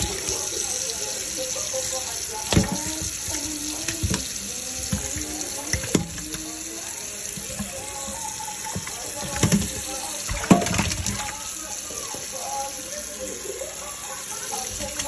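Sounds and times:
tap water running into sink: 0:00.0 - 0:15.0
fish knocking in sink: 0:02.4 - 0:06.6, 0:07.2 - 0:11.4.

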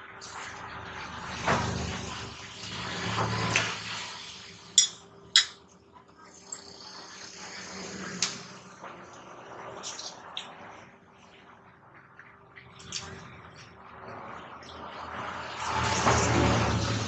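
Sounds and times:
metal fork clinking on glass plate: 0:04.8 - 0:05.6.

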